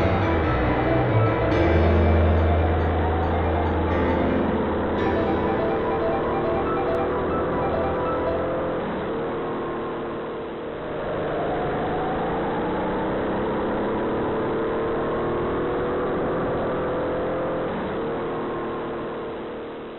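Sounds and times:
racing kart engine speeding up: 0.0s - 19.9s.

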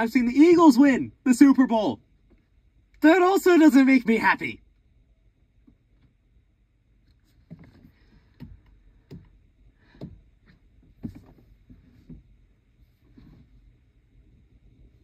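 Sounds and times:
soft knocks and thumps: 7.1s - 13.8s.

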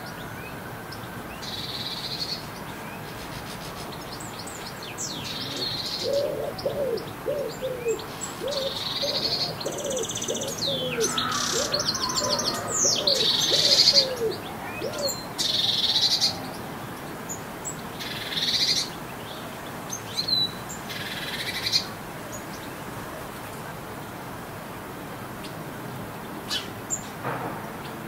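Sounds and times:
songbird singing: 0.0s - 24.2s
low cooing: 5.3s - 16.6s.

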